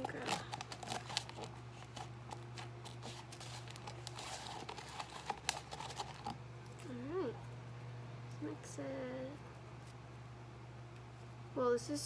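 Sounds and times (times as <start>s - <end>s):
slime crackling and squishing: 0.0s - 6.9s
steady low hum: 0.0s - 12.0s.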